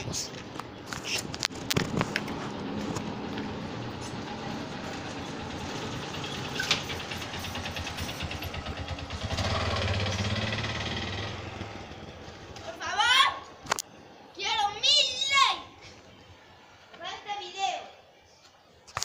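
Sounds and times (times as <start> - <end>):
engine chugging: 3.1 - 12.5.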